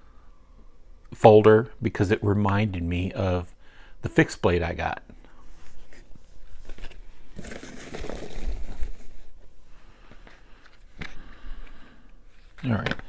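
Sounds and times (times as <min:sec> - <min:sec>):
cardboard boxes handled: 0:05.7 - 0:09.4
foam packing peanuts rustling: 0:07.2 - 0:09.4.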